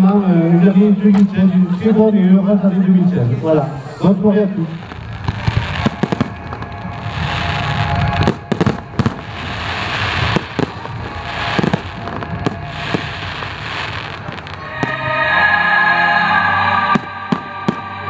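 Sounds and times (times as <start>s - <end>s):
fireworks crackling: 3.7s - 15.3s, 16.9s - 18.0s.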